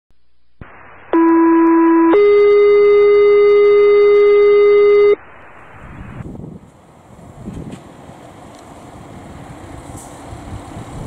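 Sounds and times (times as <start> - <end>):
electronic tone stepping up in pitch: 1.1 - 6.2.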